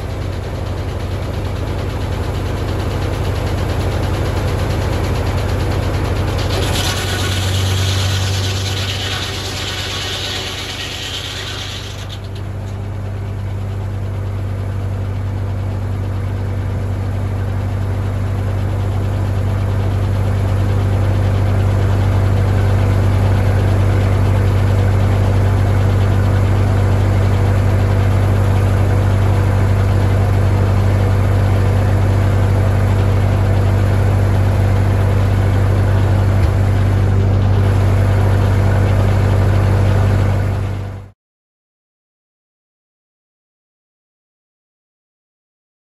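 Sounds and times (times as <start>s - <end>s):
tractor engine running: 0.0s - 41.1s
saw blade spinning: 6.2s - 12.8s.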